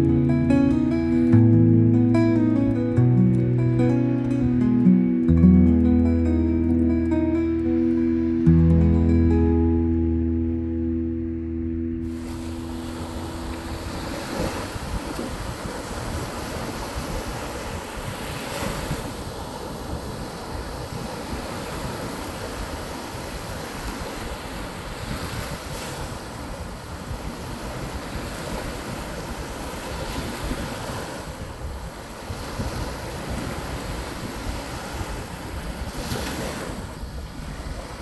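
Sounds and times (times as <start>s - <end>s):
waves washing up a beach: 12.0s - 38.0s
wind buffeting the microphone: 12.0s - 38.0s.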